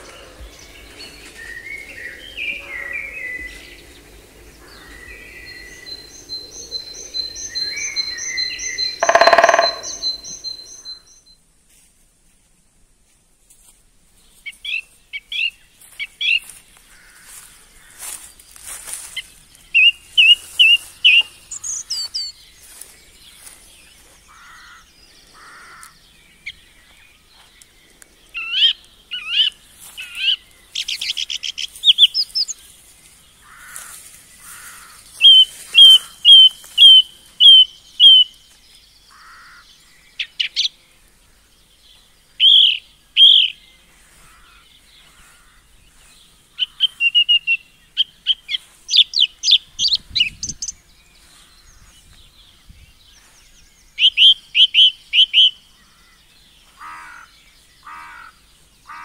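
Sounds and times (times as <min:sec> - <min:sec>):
songbirds chirping and trilling: 0:00.0 - 0:11.8, 0:13.5 - 0:59.0
whistled bird notes: 0:04.6 - 0:11.3.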